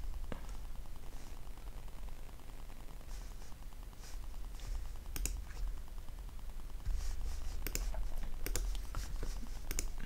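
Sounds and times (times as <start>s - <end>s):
steady low hum: 0.0s - 10.0s
computer clicks: 5.1s - 5.4s, 7.6s - 8.8s, 9.6s - 10.0s.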